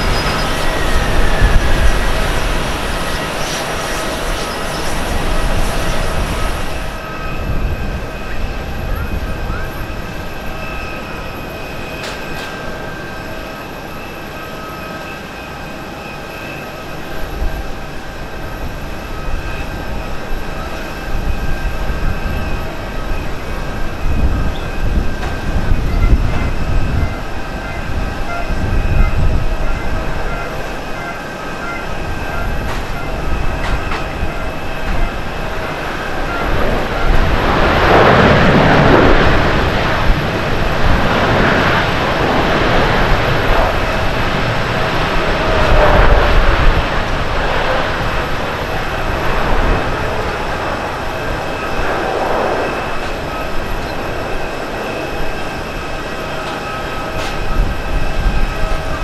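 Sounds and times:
jet engine whine: 0.0s - 59.0s
deep rumble: 32.2s - 55.9s.

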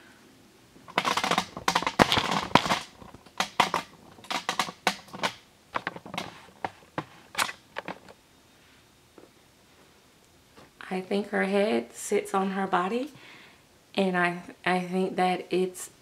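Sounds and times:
doll rustling and knocking: 0.8s - 8.2s.

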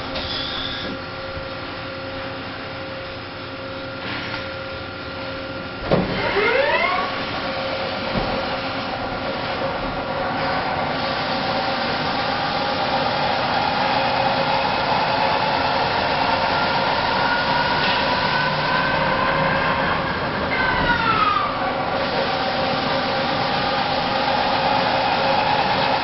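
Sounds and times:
lathe machine hum: 4.8s - 26.0s
lathe cutting whine: 5.6s - 26.0s.

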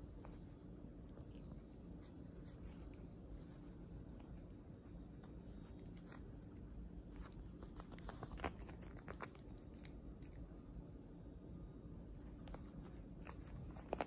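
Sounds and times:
dog chewing with crunching clicks: 7.1s - 10.5s.

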